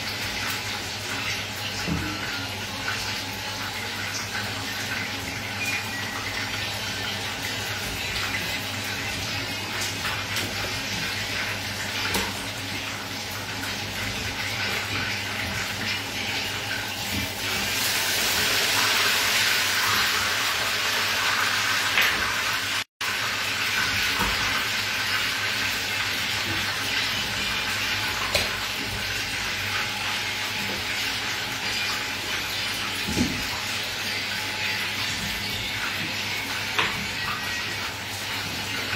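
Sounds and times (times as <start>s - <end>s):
chicken sizzling in hot oil: 0.0s - 38.9s.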